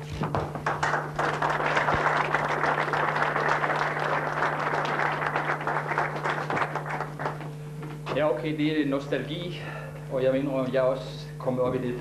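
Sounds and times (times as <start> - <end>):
audience applauding: 0.4 - 7.6.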